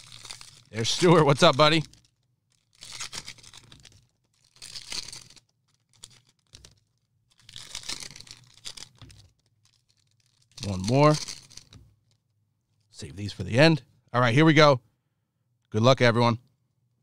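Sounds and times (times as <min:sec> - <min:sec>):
plastic wrappers ripping and rustling: 0:00.0 - 0:12.2.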